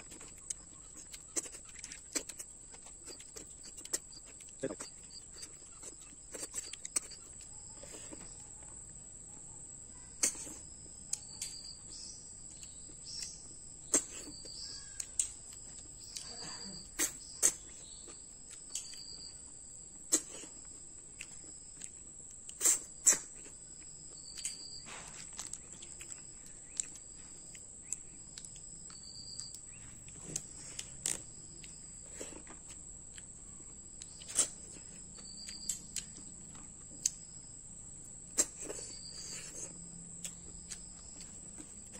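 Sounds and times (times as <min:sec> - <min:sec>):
insect trilling: 0:00.0 - 0:08.7, 0:10.0 - 0:32.5
sucking and chewing snails: 0:00.0 - 0:09.1, 0:10.1 - 0:41.9.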